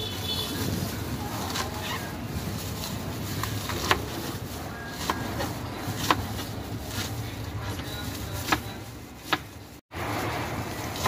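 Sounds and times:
knife slicing lettuce: 2.7s - 7.2s.

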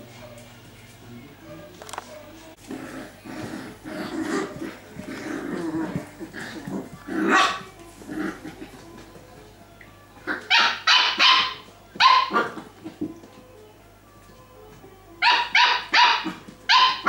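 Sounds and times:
puppies growling: 2.5s - 9.1s, 10.2s - 10.8s, 12.3s - 13.2s
puppies yapping: 4.2s - 7.7s, 10.2s - 12.8s, 15.2s - 17.0s.

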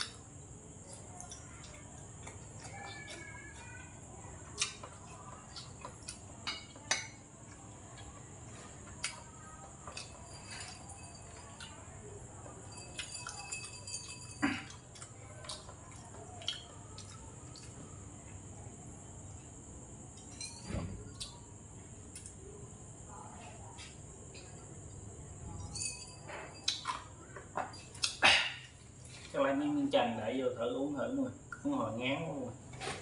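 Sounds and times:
spoon and chopsticks tapping bowls: 4.6s - 7.3s
ringing glass clinks: 12.6s - 14.7s, 20.2s - 20.8s, 25.6s - 27.0s.

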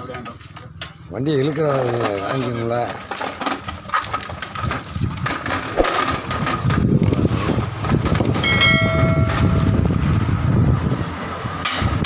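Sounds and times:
trolley rattling over concrete: 0.6s - 10.2s
short bell-like ring: 8.4s - 9.7s.

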